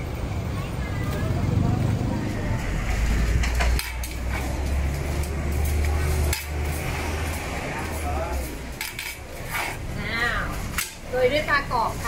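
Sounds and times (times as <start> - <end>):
metal utensils clinking on pots: 2.9 - 11.9.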